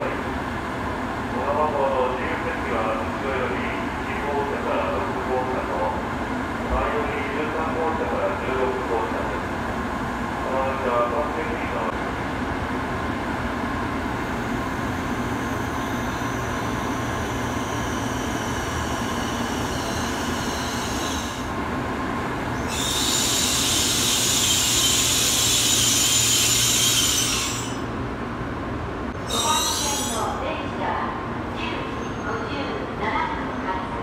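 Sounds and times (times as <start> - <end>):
high hiss with squealing tones: 22.6 - 27.7.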